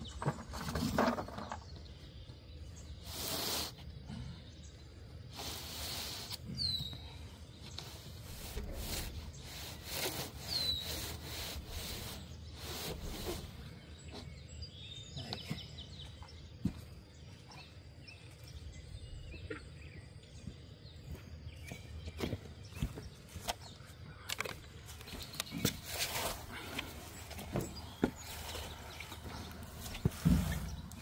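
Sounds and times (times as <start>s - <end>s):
birds chirping: 0.0s - 31.0s
plywood scraping over grass: 7.7s - 14.3s, 24.3s - 31.0s.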